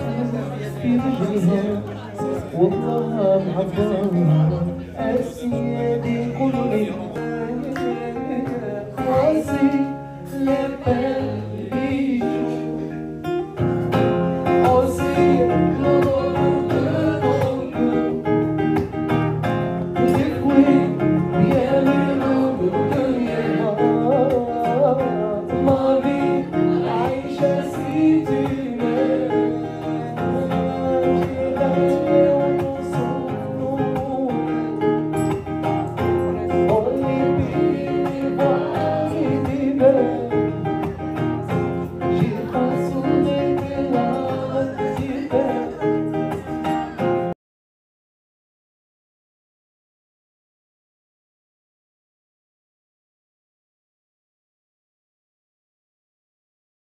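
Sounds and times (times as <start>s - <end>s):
man singing: 0.0s - 13.3s, 14.3s - 18.8s, 19.9s - 35.4s, 36.0s - 47.1s
acoustic guitar chords: 0.0s - 47.4s.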